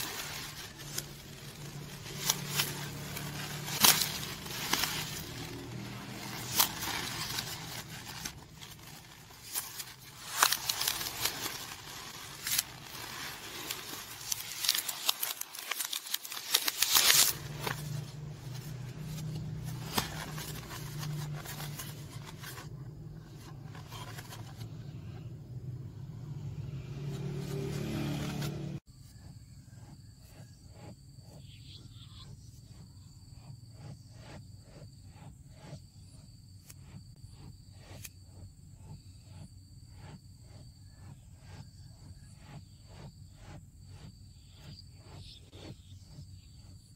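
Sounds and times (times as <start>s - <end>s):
polystyrene foam crackling: 0.0s - 22.7s.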